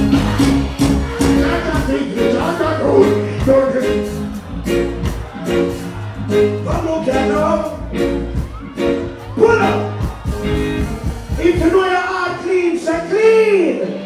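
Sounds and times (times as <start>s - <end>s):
steady drum beat: 0.0s - 12.1s
heavy bass line: 0.0s - 12.2s
reggae band playing live: 0.0s - 14.0s
man singing: 1.2s - 4.2s.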